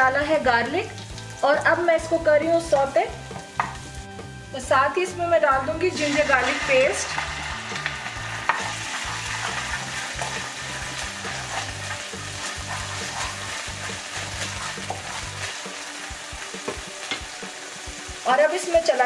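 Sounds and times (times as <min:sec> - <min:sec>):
garlic sizzling in hot oil: 0:00.0 - 0:19.0
wooden spatula scraping pan: 0:05.9 - 0:15.6.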